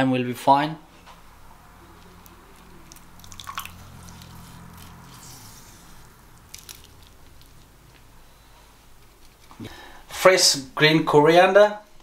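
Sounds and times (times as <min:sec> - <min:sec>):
wet squelching of squeezed lime: 0:02.2 - 0:07.8.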